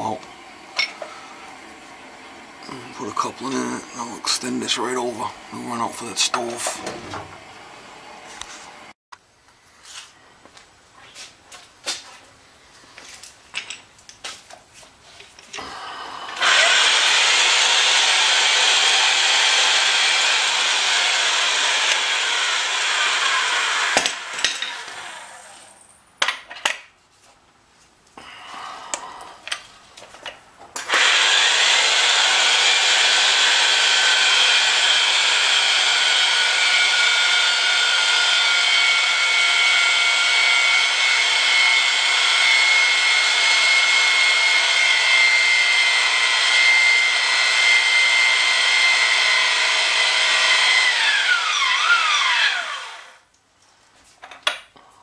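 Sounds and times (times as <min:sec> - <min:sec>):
pipe-threading machine motor: 0:15.6 - 0:25.6, 0:30.8 - 0:53.0.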